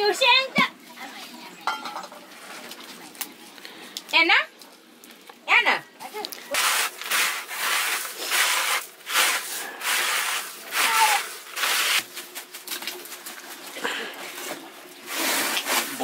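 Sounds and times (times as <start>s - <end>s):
grains rubbed on bamboo tray: 6.5s - 12.1s.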